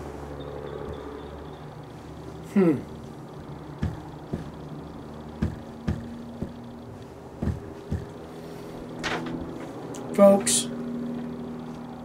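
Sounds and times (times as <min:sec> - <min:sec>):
steady low hum: 0:00.0 - 0:12.0
soft low thumps: 0:00.8 - 0:08.9.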